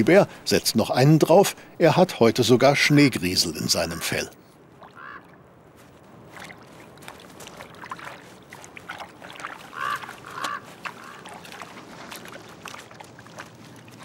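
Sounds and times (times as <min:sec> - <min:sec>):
rustling and splashing in wet grass: 0:04.6 - 0:14.0
waterfowl honking: 0:04.8 - 0:05.4, 0:09.5 - 0:11.8.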